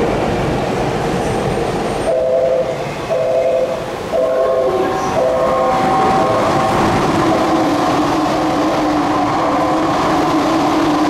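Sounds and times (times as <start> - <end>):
trains rumbling: 0.0 - 11.0
two-note electronic warning tone: 2.1 - 7.1.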